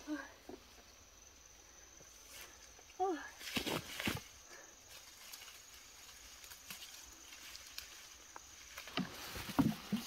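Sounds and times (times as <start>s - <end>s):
fern fronds rustling: 2.0s - 10.0s.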